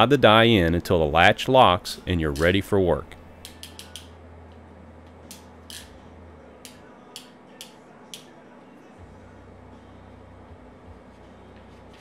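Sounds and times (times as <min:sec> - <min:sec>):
ratcheting wire crimper clicking: 0:03.4 - 0:04.1.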